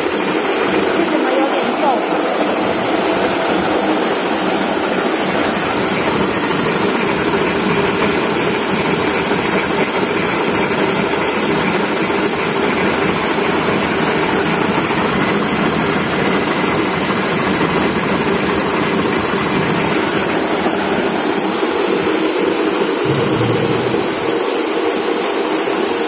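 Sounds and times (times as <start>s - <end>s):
paper rewinding machine running: 0.0s - 21.2s.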